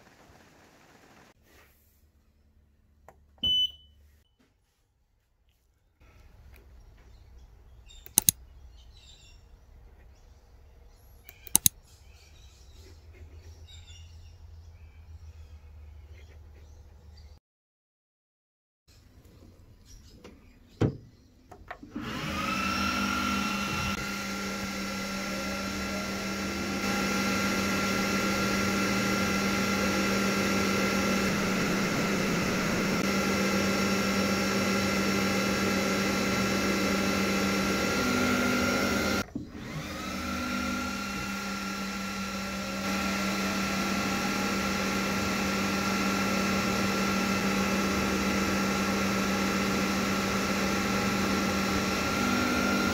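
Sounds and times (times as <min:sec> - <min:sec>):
sharp click: 0:08.0 - 0:08.4, 0:11.3 - 0:11.8
fan and blower whining: 0:21.8 - 0:52.9
low drone: 0:23.6 - 0:36.8.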